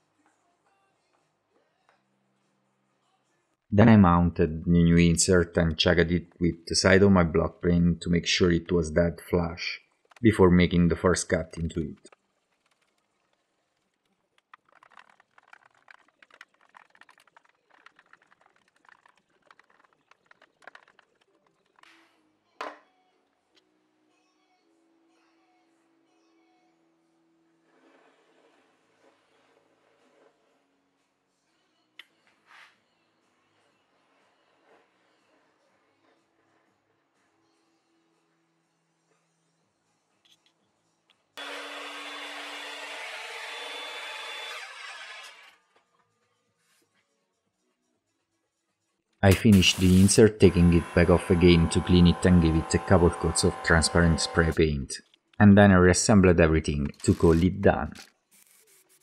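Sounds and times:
faint music with held notes: 0.0 - 3.7, 21.8 - 41.4, 45.6 - 49.2
miter saw cutting wood: 41.4 - 45.6, 49.3 - 54.7, 56.9 - 59.0.

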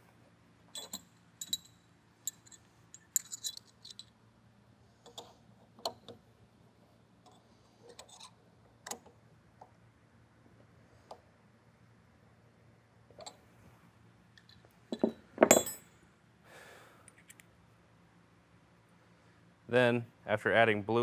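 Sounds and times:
wrenches clinking on metal: 0.7 - 4.1, 14.5 - 15.9.

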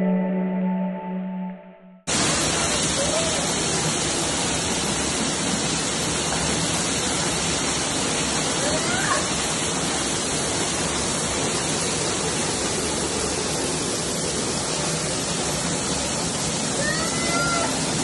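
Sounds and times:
heavy rain and hail on stone: 2.1 - 18.0.

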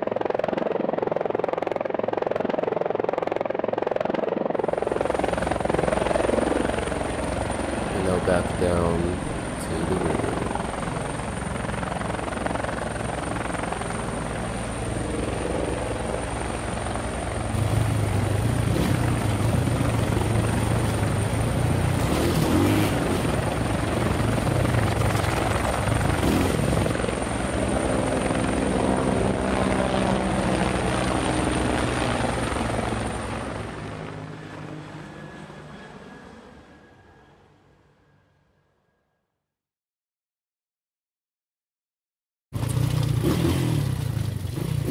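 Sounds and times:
drone propellers whirring: 0.2 - 37.9
rough low hum: 4.6 - 27.2.

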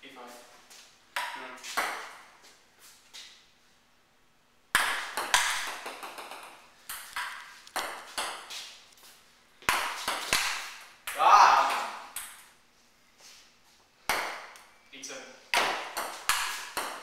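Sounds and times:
ping-pong ball clicks: 4.8 - 8.4, 15.6 - 17.0.

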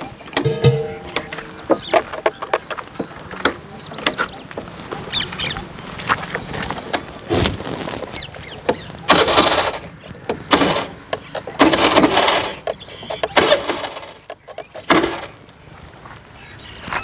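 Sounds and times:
scooter starter cranking: 9.1 - 15.4.

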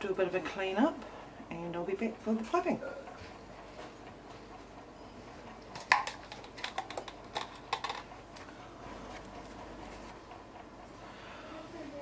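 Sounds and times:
utensils clicking and tapping: 5.7 - 8.5.

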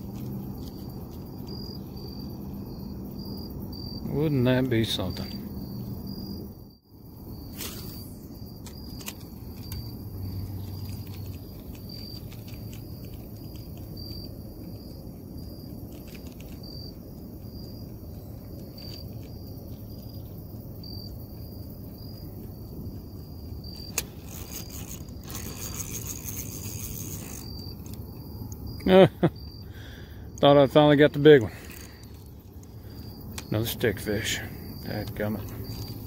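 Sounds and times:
crickets chirping: 0.0 - 36.0
rattling and scraping: 23.6 - 28.8.

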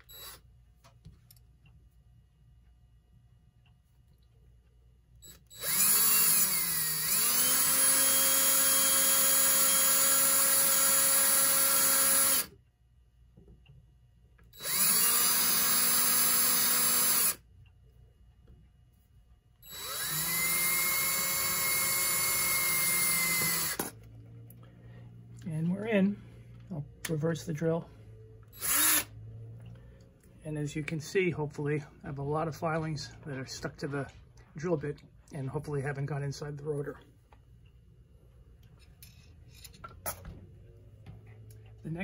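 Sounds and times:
electric drill boring metal: 0.0 - 0.4, 5.2 - 12.5, 14.6 - 17.4, 19.7 - 24.0, 28.6 - 29.1.

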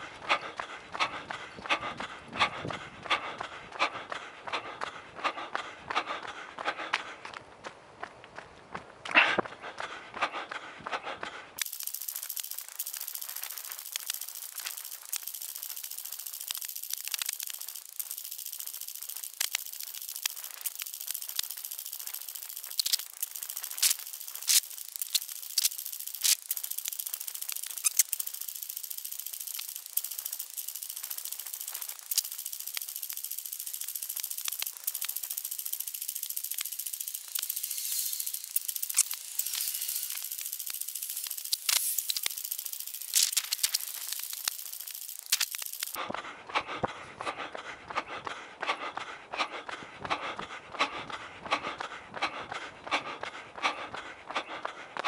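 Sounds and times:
sharp clicks and rattles: 11.6 - 46.2.

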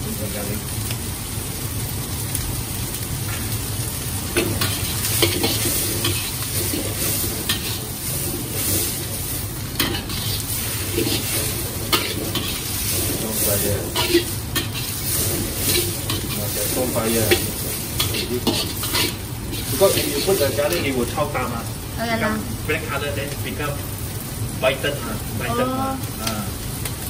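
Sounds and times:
vegetables sizzling in a wok: 0.0 - 27.0
metal spatula scraping a wok: 4.4 - 21.1.

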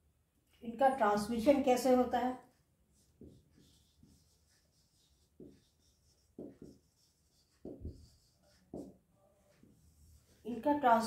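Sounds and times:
marker pen writing on whiteboard: 2.4 - 10.8.

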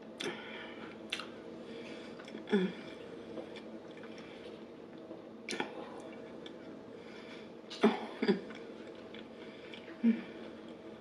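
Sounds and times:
faint steady hum: 0.0 - 11.0
chewing food: 1.0 - 1.3
wet mouth clicks: 1.1 - 1.3.

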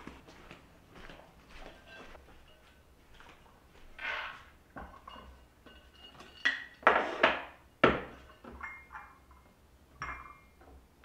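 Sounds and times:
ceramic dishes clinking on wood: 1.6 - 2.9, 4.3 - 10.8.

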